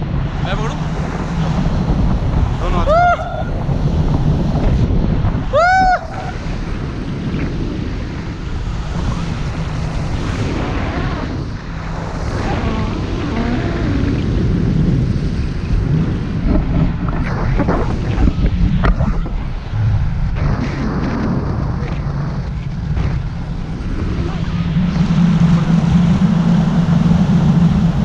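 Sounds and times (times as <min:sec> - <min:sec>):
wind buffeting microphone: 0:00.0 - 0:28.0
rising and falling tone: 0:12.1 - 0:14.4.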